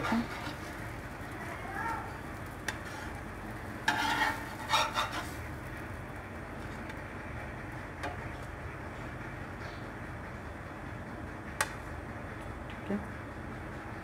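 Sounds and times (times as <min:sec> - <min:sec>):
spatula scraping frying pan: 0:00.0 - 0:00.9, 0:02.7 - 0:05.5
steady low hum: 0:00.0 - 0:14.0.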